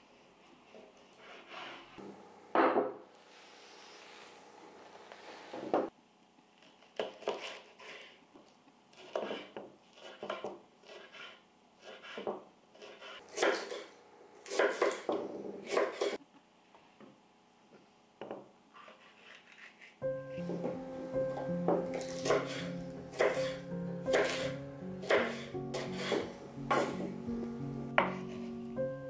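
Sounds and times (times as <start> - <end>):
knife chopping on wooden board: 11.9 - 13.8, 14.4 - 16.2, 21.7 - 27.1, 28.0 - 28.3.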